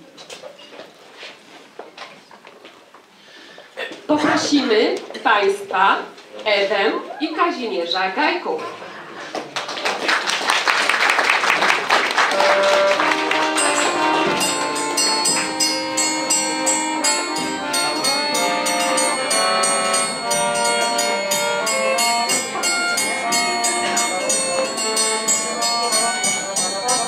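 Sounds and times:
audience applauding: 0:09.2 - 0:15.7
brass music: 0:12.3 - 0:27.0.

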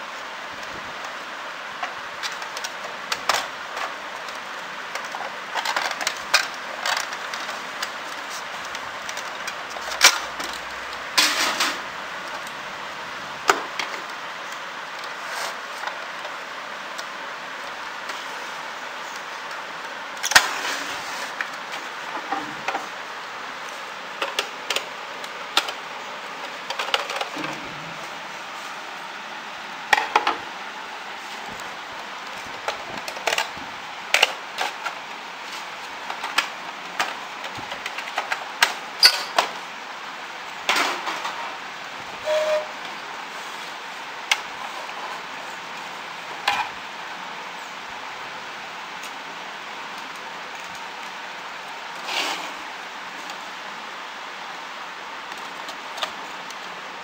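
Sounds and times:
steady hiss: 0:00.0 - 0:57.0.

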